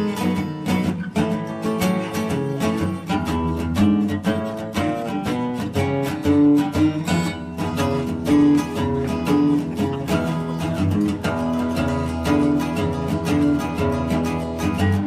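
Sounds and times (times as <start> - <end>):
instrumental music with quick beat: 0.0 - 15.0.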